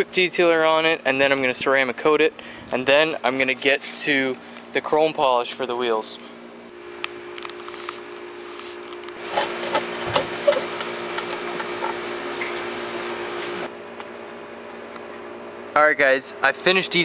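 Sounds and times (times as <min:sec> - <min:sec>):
steady low hum: 0:00.0 - 0:17.0
towel rubbing car paint: 0:07.8 - 0:13.7.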